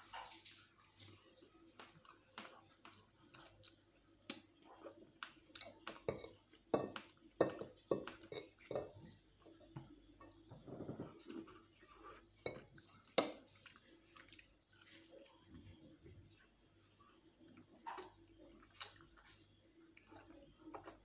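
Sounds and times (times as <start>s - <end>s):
chewing and smacking: 0.1s - 7.3s, 12.6s - 21.0s
cutlery and dishes clinking: 5.9s - 9.1s.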